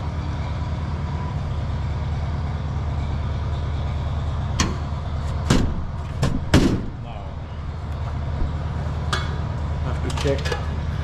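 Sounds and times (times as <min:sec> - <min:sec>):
low machine hum: 0:00.0 - 0:11.0
sheet metal knocks: 0:05.4 - 0:07.0.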